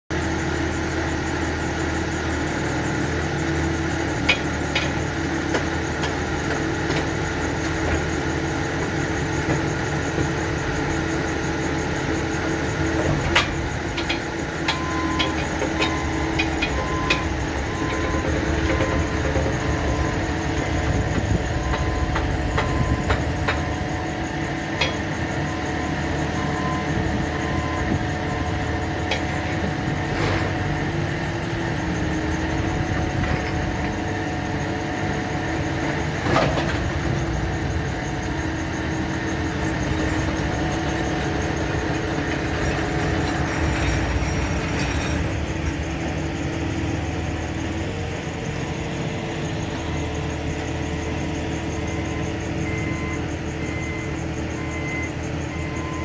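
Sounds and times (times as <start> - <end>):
farm machine engine idling: 0.2 - 56.0.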